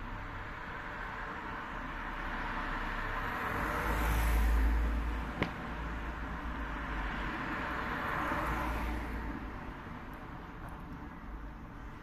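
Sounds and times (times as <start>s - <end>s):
car passing: 0.3s - 9.4s.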